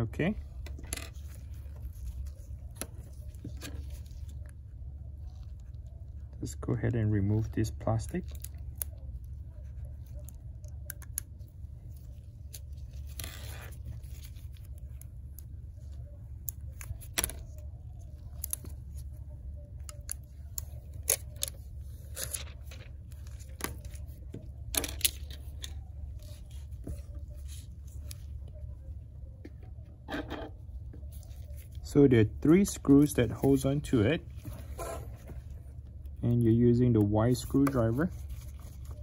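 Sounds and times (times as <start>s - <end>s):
steady low hum: 0.0s - 39.0s
plastic film peeling: 7.4s - 28.9s, 37.0s - 39.0s.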